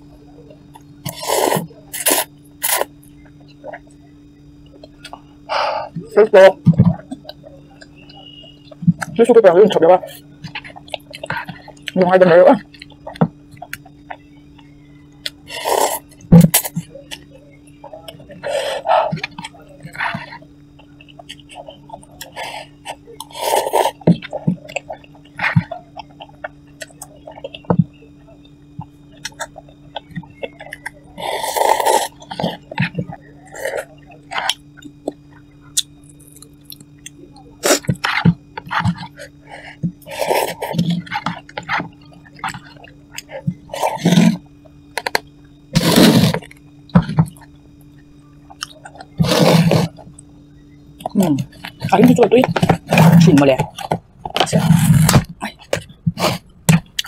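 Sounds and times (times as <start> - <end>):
person slurping noodles: 1.1 - 2.9, 15.5 - 16.7, 23.2 - 24.0, 31.2 - 32.1, 40.1 - 40.8, 45.8 - 46.5, 49.2 - 50.0
chewing: 10.1 - 12.0, 12.6 - 56.0.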